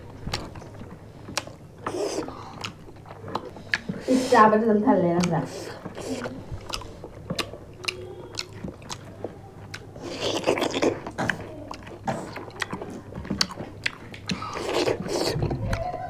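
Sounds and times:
crunchy chewing: 0.0 - 4.1, 4.9 - 16.0
wet chewing and lip-smacking: 0.0 - 4.3, 4.9 - 16.0
sharp mouth clicks: 5.2 - 9.1.

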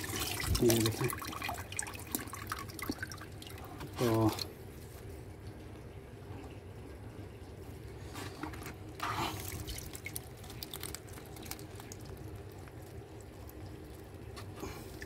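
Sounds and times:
water splashing and dripping: 0.0 - 4.5, 9.0 - 15.0.

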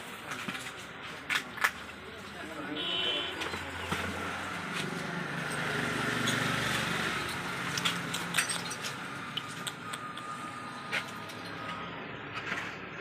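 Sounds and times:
vehicle engine passing by: 3.8 - 13.0
glass bottles clinking: 7.2 - 9.7.

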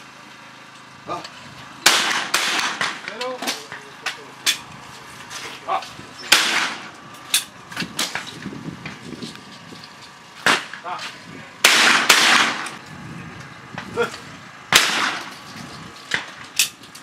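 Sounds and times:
shotgun shots with echo: 1.8 - 3.6, 6.3 - 6.9, 10.4 - 10.8, 11.6 - 12.8, 14.7 - 15.3.

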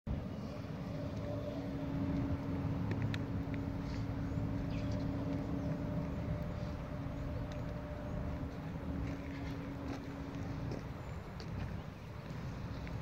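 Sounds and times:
low engine rumble: 0.1 - 13.0.

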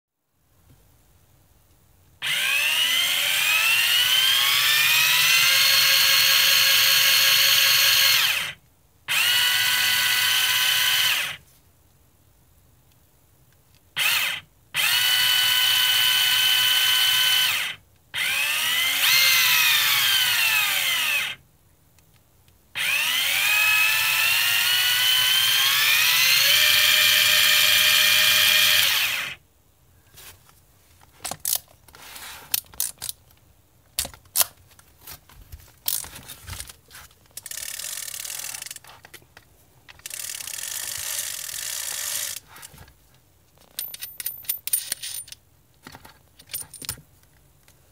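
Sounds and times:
reel clicks and rattles: 35.8 - 38.9, 39.9 - 42.4.

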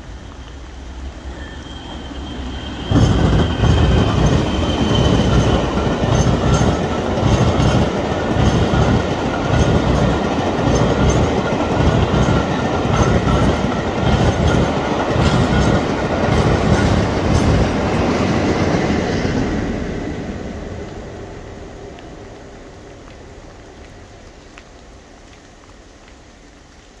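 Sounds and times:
train wheels clattering over rail joints: 2.8 - 19.6.

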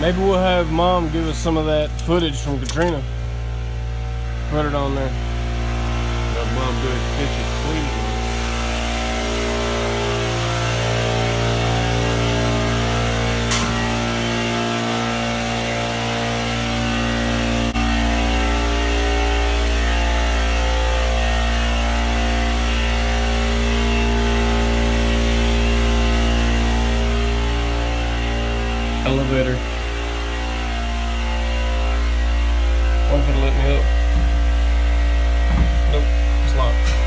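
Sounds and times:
machine droning: 0.0 - 37.0
sharp click: 13.5 - 13.8.

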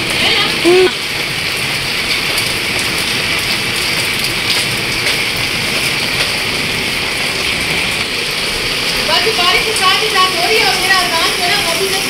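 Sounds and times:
heavy rain on a plastic roof: 0.0 - 12.0.

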